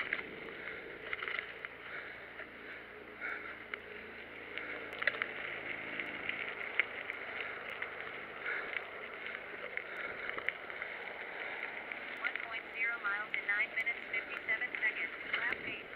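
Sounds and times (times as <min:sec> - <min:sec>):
bike parts rattling: 0:00.0 - 0:11.8
bike tyres crunching on gravel: 0:00.0 - 0:15.9.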